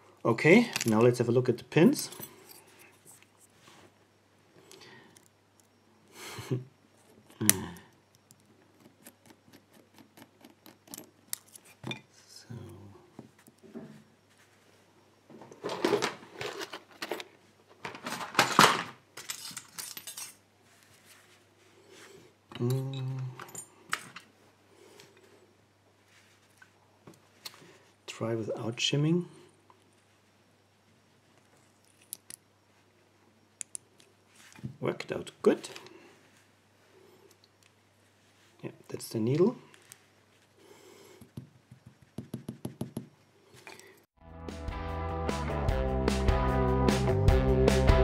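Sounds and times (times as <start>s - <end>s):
lock parts clicking and scraping: 8.2s - 12.1s, 18.0s - 20.4s
metal parts clattering: 17.8s - 20.4s.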